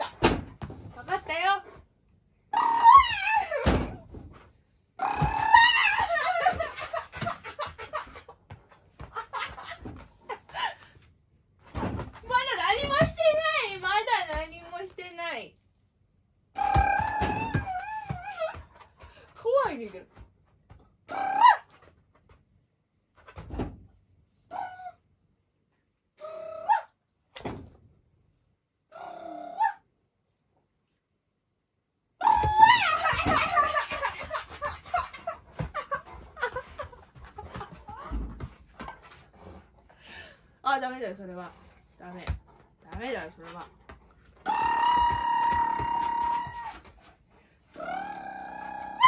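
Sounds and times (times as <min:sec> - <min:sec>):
woman laughing and squealing: 0:05.0 - 0:08.3, 0:32.2 - 0:38.4.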